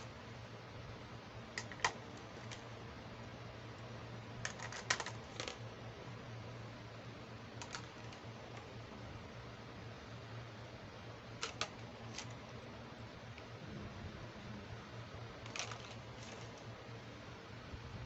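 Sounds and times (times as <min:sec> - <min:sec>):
faint low hum: 0:00.0 - 0:18.0
plastic toy pieces clicking: 0:01.6 - 0:02.7, 0:04.4 - 0:05.6, 0:07.6 - 0:08.7, 0:11.4 - 0:12.4, 0:15.4 - 0:16.6.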